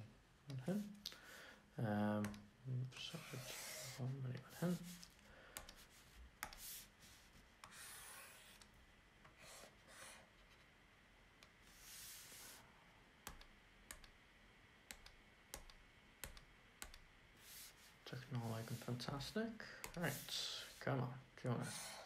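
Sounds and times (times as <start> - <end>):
scratchy rubbing: 3.0 - 5.2
computer mouse clicks: 13.2 - 14.2, 14.9 - 17.0.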